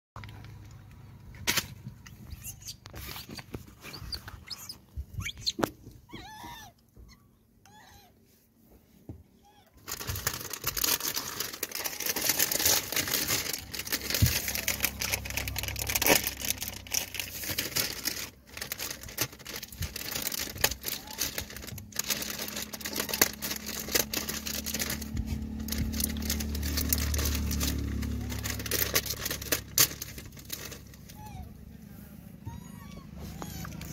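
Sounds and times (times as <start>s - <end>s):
plastic packet crinkling: 9.8s - 31.4s.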